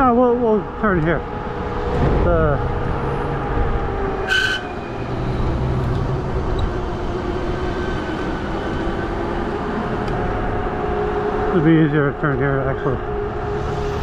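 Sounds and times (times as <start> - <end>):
wind rumble on microphone: 1.0 - 4.2.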